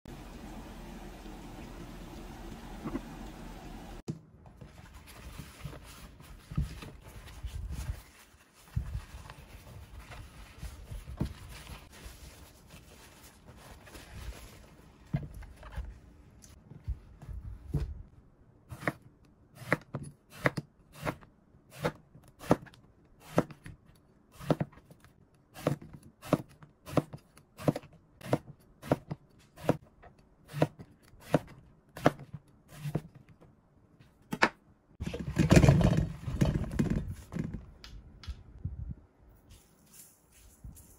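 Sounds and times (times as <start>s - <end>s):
handling and rustling: 4.4s - 18.1s, 35.0s - 37.8s, 39.3s - 40.9s.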